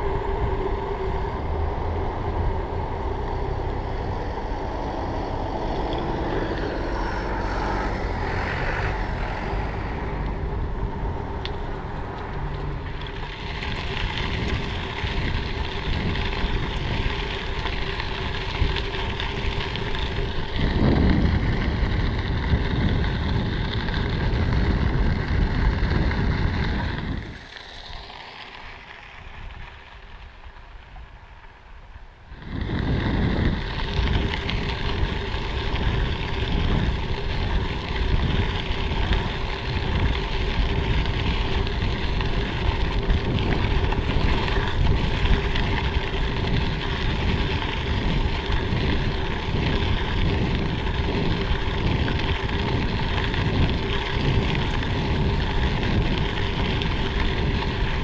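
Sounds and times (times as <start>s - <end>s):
bike tyres rumbling over gravel: 0.0s - 58.0s
wind buffeting microphone: 0.0s - 58.0s.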